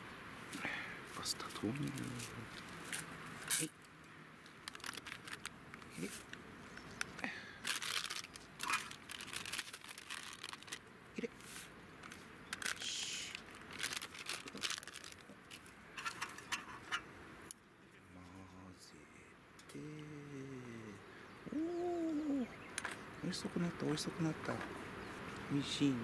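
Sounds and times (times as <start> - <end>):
rustling bursts: 7.6 - 10.8, 11.4 - 17.0.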